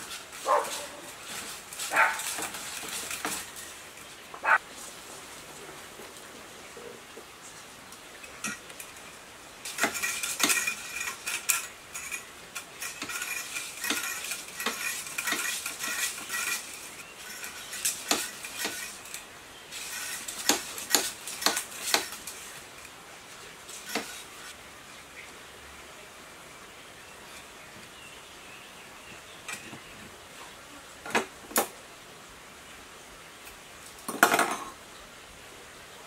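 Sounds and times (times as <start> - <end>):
coil-winding machine metallic clicks: 9.6 - 19.2.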